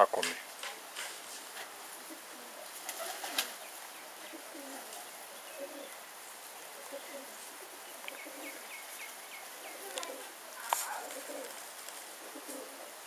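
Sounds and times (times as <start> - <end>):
pigeons cooing: 0.4 - 13.0.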